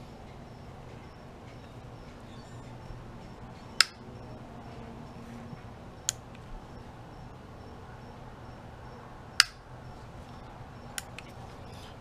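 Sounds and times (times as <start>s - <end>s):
sharp metallic clicks: 1.1s - 4.4s, 6.0s - 7.4s, 9.4s - 9.7s.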